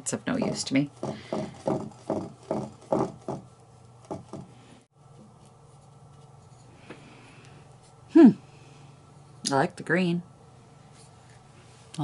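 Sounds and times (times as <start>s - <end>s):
faint room hum: 0.0s - 12.0s
paintbrush scratching: 0.9s - 4.5s, 5.2s - 6.7s.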